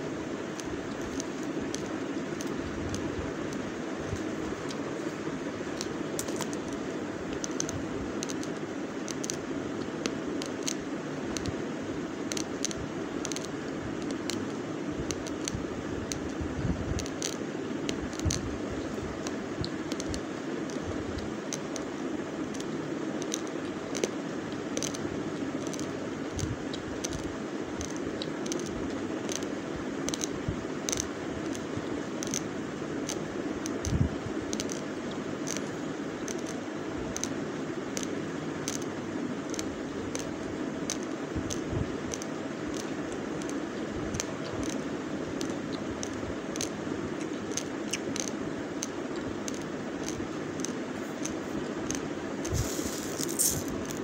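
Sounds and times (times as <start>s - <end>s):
low background noise: 0.0s - 54.0s
rice grains crunching when chewed: 49.5s - 54.0s.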